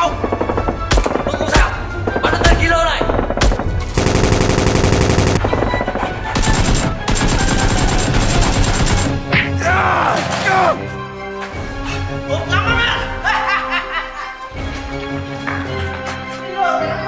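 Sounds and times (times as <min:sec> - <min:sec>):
background music: 0:00.0 - 0:17.0
automatic gunfire bursts: 0:02.2 - 0:09.2.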